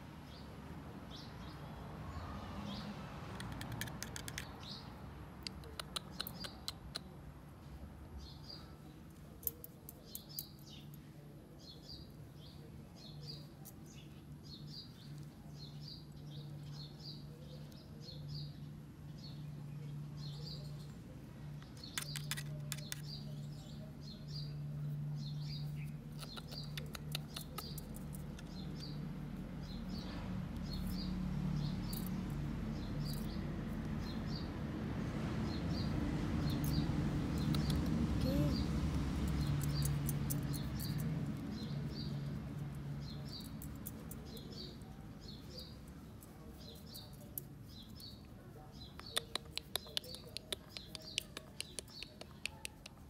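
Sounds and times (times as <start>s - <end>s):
small bird chirping: 1.1s - 7.2s, 8.2s - 34.6s, 35.4s - 53.0s
sharp clicks: 3.3s - 4.6s, 5.4s - 7.1s, 21.6s - 23.2s, 26.1s - 28.9s, 36.4s - 38.0s, 49.0s - 53.0s.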